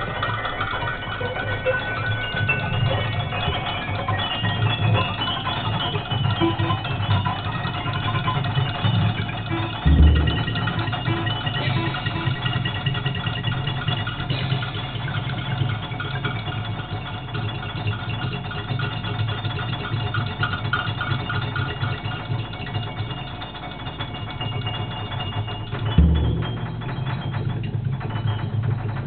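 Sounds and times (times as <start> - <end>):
low drum rumble: 0.0 - 19.3, 25.3 - 29.0
loud low drum hit: 9.8 - 12.2, 26.0 - 28.7.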